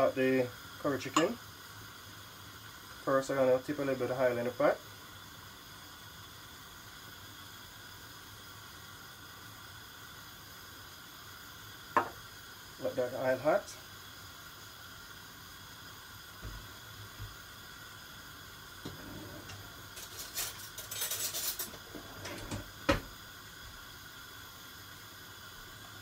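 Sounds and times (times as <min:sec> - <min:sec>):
low steady hiss: 0:00.0 - 0:26.0
dishes and utensils clattering: 0:18.9 - 0:22.7.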